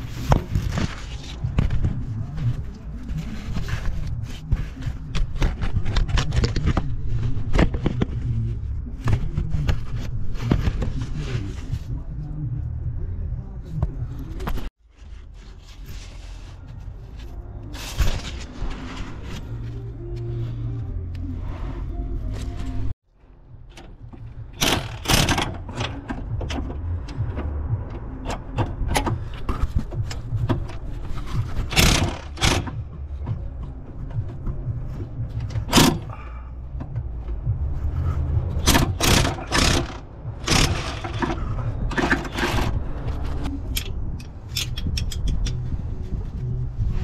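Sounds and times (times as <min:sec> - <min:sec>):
metal tools clanking and scraping: 0:38.6 - 0:42.8, 0:43.7 - 0:45.6.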